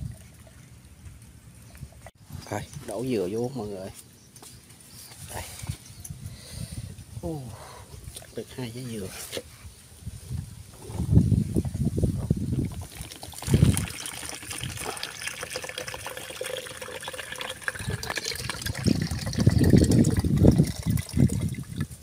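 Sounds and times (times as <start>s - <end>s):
coconut water trickling and splashing: 12.5s - 22.0s.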